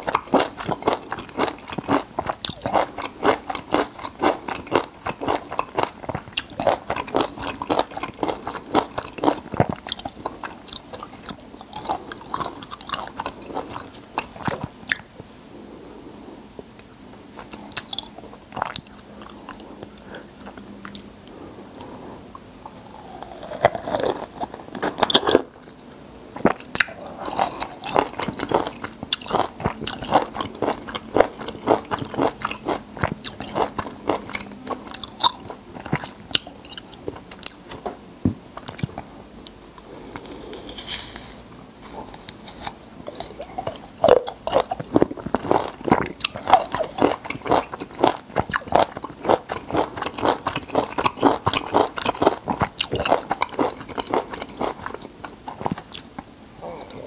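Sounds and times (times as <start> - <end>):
person chewing crunchy fruit: 0.0 - 15.2, 17.4 - 57.0.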